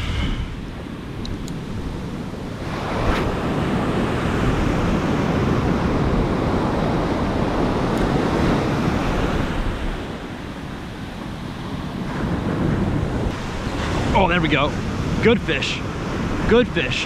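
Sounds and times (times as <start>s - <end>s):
ocean surf breaking: 0.0s - 17.0s
wind on microphone: 0.0s - 17.0s.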